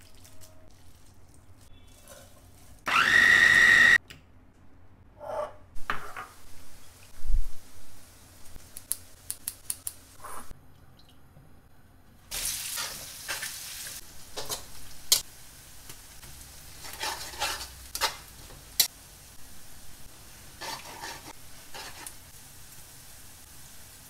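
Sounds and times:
shallots sizzling in hot oil: 0:12.3 - 0:24.0.

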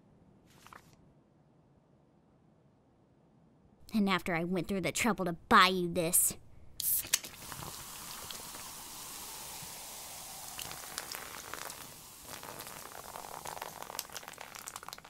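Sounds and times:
drink fizzing with popping bubbles: 0:06.8 - 0:15.0
foam dripping onto floor: 0:07.1 - 0:15.0.

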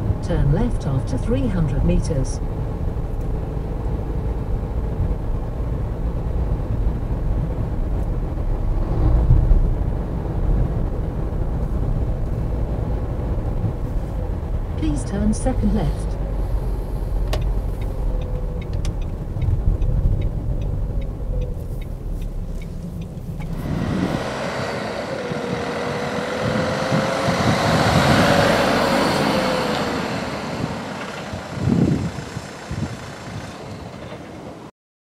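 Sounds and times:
rushing vehicle with faint whine: 0:00.0 - 0:34.7
van engine and road rumble: 0:00.0 - 0:34.7
light regular ticks: 0:17.3 - 0:23.6.

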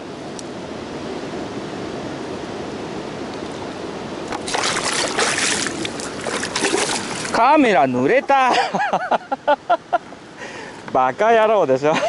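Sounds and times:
shallow river rushing: 0:00.0 - 0:12.0
splashing in water: 0:04.3 - 0:07.6.

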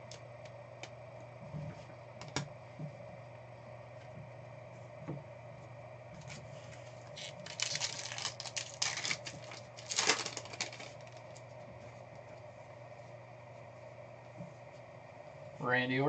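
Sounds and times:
faint steady hum: 0:00.0 - 0:16.0
foil pack crinkling: 0:07.0 - 0:11.6.

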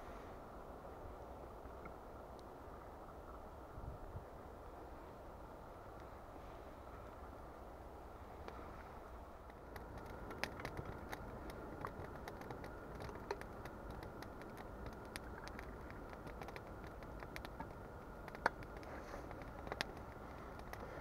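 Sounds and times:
campfire crackling: 0:04.5 - 0:21.0.

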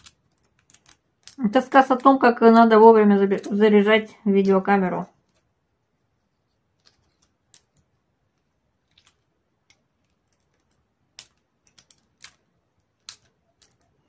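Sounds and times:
eggshell cracking and crackling: 0:00.0 - 0:03.7, 0:06.6 - 0:14.0.

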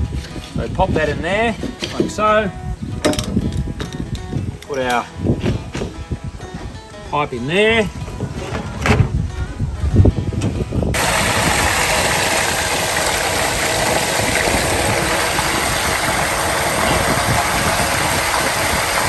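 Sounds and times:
liquid gushing into tank: 0:11.0 - 0:19.0.

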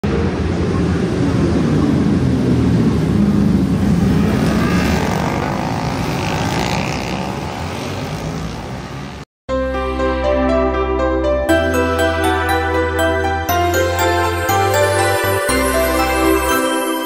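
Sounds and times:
racing motorcycles passing: 0:00.1 - 0:09.3.

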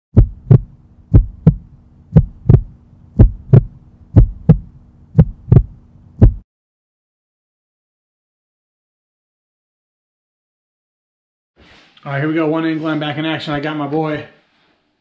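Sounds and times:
heartbeat thumps: 0:00.1 - 0:06.4
steady low hum: 0:00.2 - 0:06.4.

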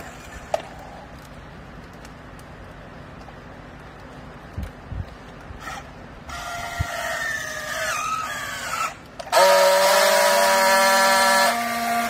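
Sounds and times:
strapping tool motor whine: 0:05.6 - 0:12.0.

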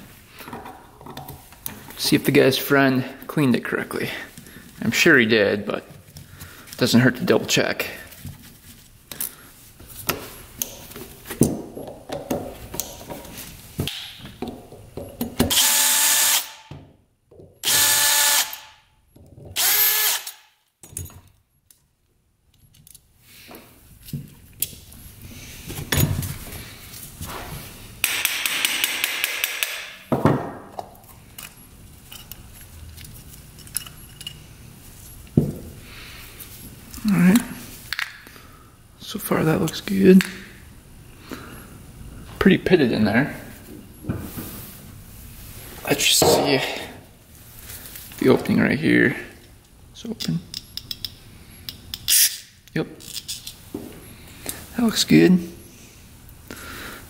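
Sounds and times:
cordless drill whirring: 0:17.6 - 0:18.6, 0:19.6 - 0:20.4
small metal parts clicking: 0:50.2 - 0:53.6.

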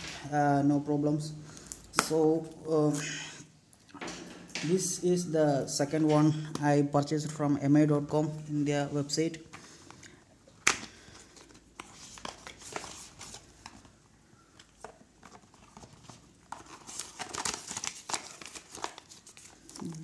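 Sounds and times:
paper rustling: 0:11.0 - 0:13.9, 0:14.6 - 0:20.0.

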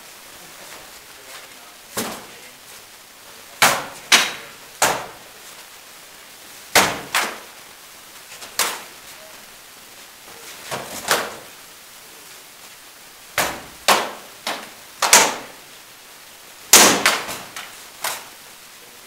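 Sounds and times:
sword blows cracking on shields: 0:03.6 - 0:05.2, 0:06.7 - 0:07.5, 0:08.6 - 0:08.9, 0:10.7 - 0:11.5, 0:13.4 - 0:15.5, 0:16.7 - 0:18.3.

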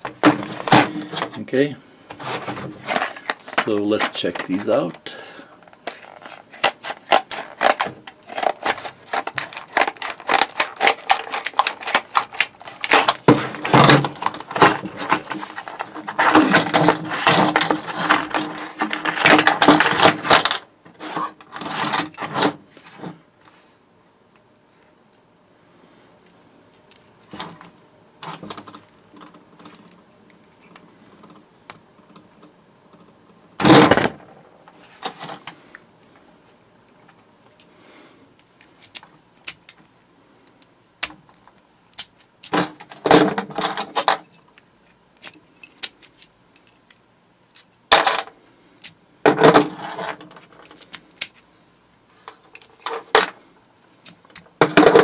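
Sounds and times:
padlock shackles clicking: 0:38.6 - 0:39.9, 0:45.2 - 0:47.8, 0:50.6 - 0:51.5
keys and locks jangling: 0:43.7 - 0:44.6, 0:45.2 - 0:48.1, 0:50.6 - 0:51.5
keys working in padlocks: 0:45.2 - 0:47.9, 0:50.6 - 0:51.5.

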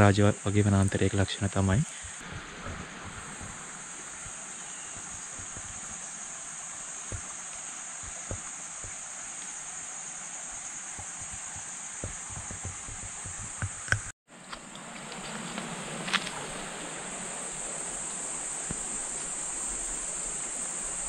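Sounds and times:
chorus of forest insects: 0:00.0 - 0:21.0
soft low thumps: 0:01.7 - 0:06.1, 0:11.0 - 0:14.1.

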